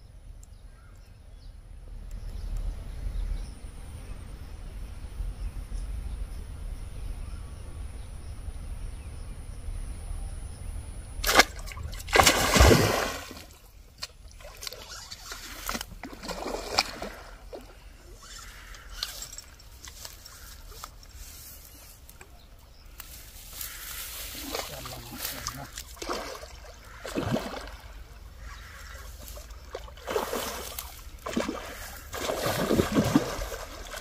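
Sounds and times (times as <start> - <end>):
low wind rumble: 0.0 - 14.4
fish splashing and thrashing: 11.2 - 21.3, 23.7 - 34.0.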